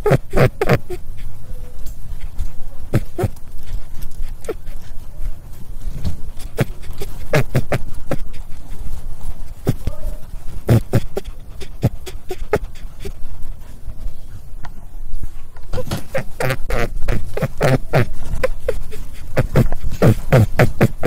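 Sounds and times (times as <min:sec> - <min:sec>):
rabbit making sharp noises: 0:00.0 - 0:01.7, 0:02.9 - 0:04.8, 0:06.0 - 0:08.6, 0:09.5 - 0:13.2, 0:15.7 - 0:21.0.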